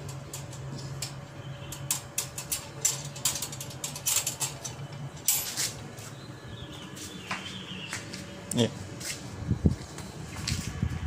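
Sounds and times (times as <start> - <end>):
wire cage door rattling: 0.0 - 5.8.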